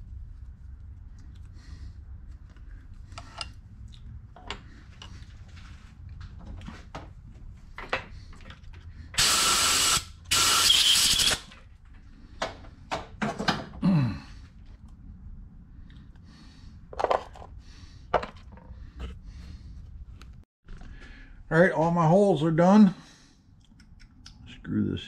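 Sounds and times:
compressed air blasts: 9.2s - 11.5s.

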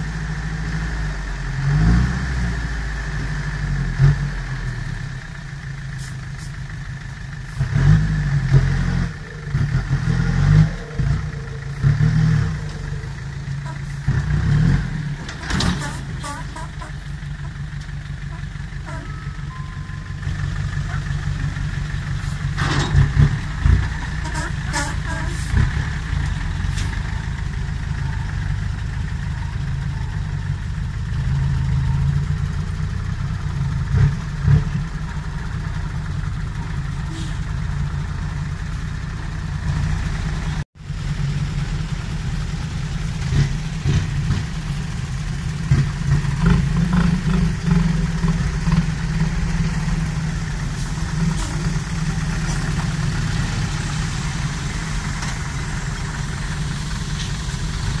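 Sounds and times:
diesel truck engines running: 0.0s - 58.0s.

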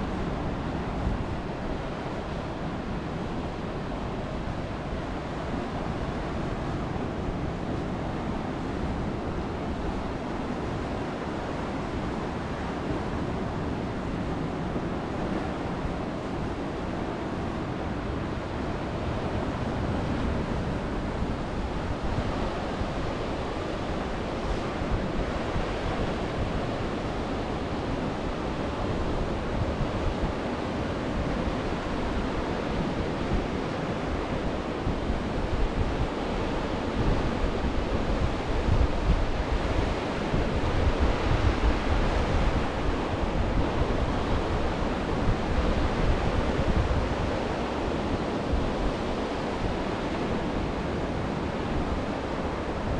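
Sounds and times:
wind rumbling on microphone: 0.0s - 52.9s.

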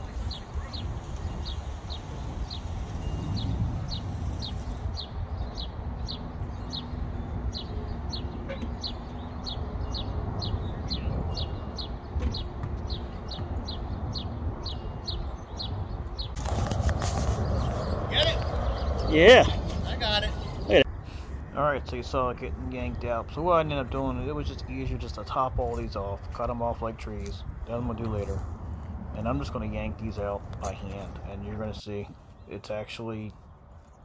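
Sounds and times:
bird chirping: 0.0s - 21.3s.

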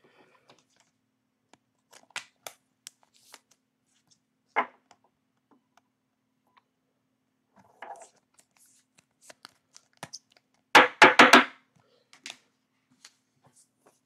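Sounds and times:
trading cards rustling and tapping: 7.8s - 10.7s.

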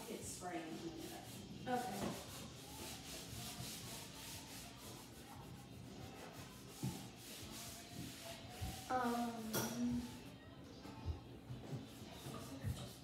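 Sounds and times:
cloth rubbing on wooden table: 0.6s - 9.2s.

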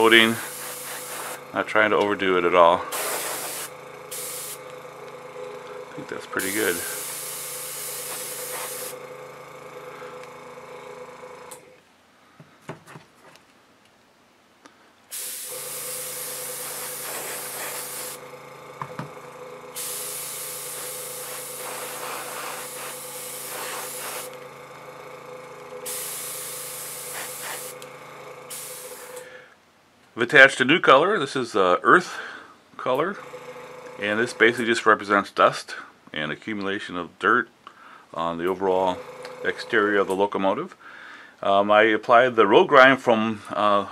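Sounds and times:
airbrush spraying hiss: 0.0s - 1.4s, 2.9s - 4.7s, 6.4s - 9.0s, 15.1s - 18.2s, 19.8s - 24.4s, 25.8s - 27.8s, 28.5s - 29.2s
air compressor hum: 0.0s - 11.8s, 15.1s - 29.5s, 33.0s - 34.9s, 38.0s - 40.4s.

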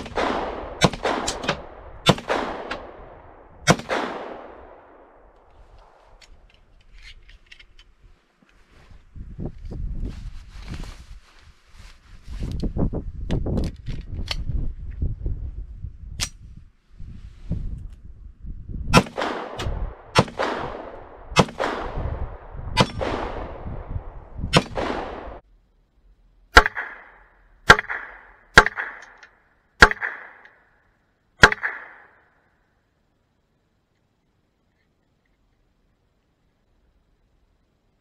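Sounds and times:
pistol shots: 0.0s - 3.0s, 3.7s - 4.7s, 19.0s - 22.0s, 24.5s - 25.4s, 26.5s - 29.2s, 29.8s - 30.5s, 31.4s - 32.2s.

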